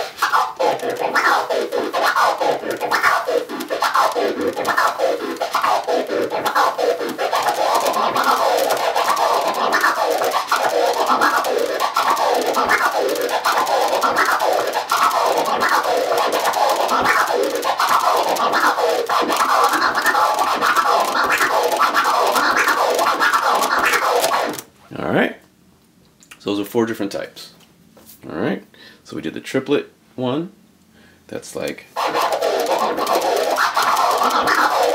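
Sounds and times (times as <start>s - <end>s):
turntable scratching: 0.0s - 24.6s, 31.9s - 34.9s.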